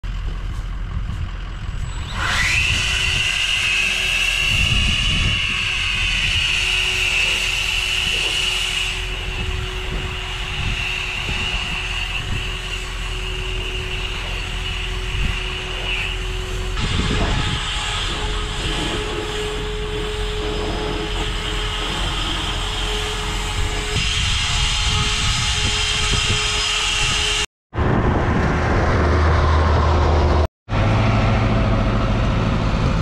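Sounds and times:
low rumble: 0.0 - 3.3, 27.8 - 33.0
leaf blower whining: 1.7 - 27.3.

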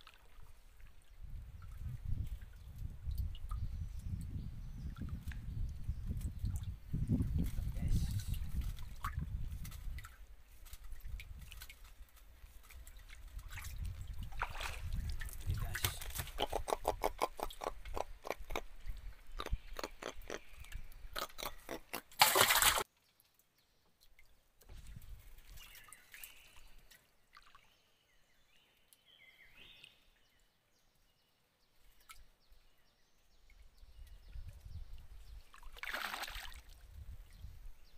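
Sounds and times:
water sloshing around a boat: 8.4 - 16.4.

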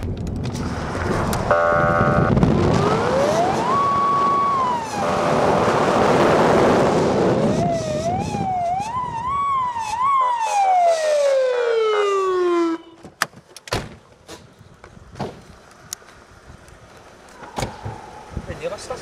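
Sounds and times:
vehicle noise: 0.0 - 19.0
police siren wailing and yelping: 1.5 - 13.0.

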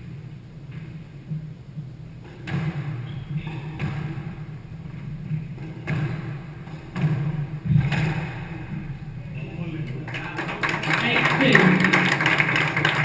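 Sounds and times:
squash ball cracks: 5.6 - 8.7.

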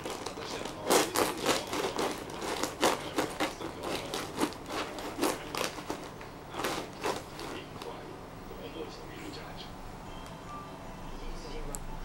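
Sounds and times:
cat scratching straw mat: 0.0 - 8.1.

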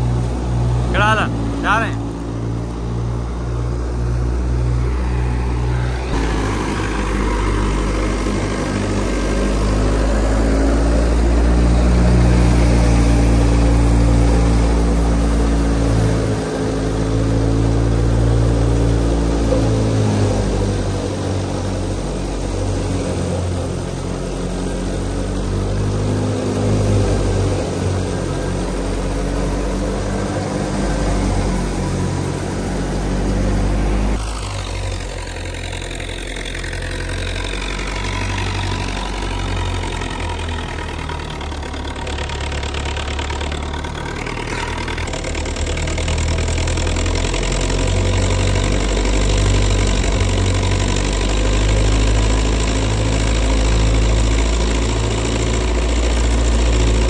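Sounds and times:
thresher engine drone: 0.0 - 57.0.

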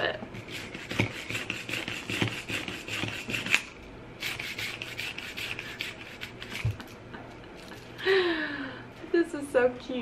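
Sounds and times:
push-down whisk rasping: 0.4 - 6.8.

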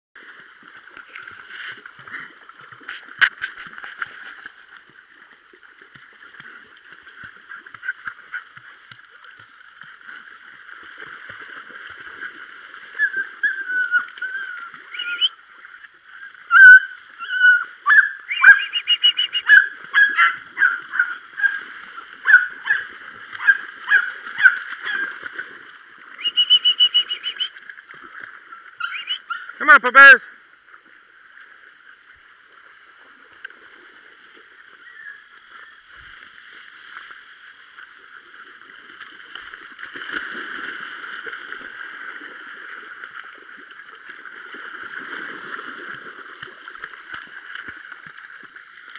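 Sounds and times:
puppies yelping: 16.5 - 21.6, 22.2 - 25.1, 28.8 - 29.5.

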